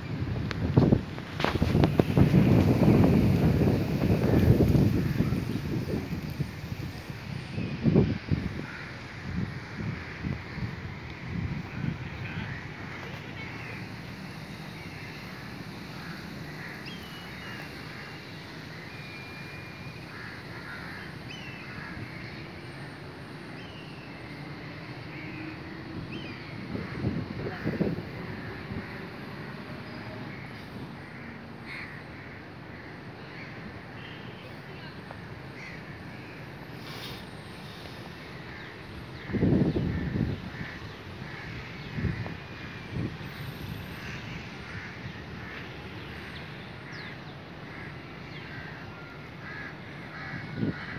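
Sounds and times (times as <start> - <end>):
crows cawing: 8.5 - 10.4, 15.9 - 18.4, 20.0 - 22.4, 30.3 - 33.6, 35.6 - 36.4, 38.4 - 42.8, 44.0 - 45.7, 46.8 - 50.9.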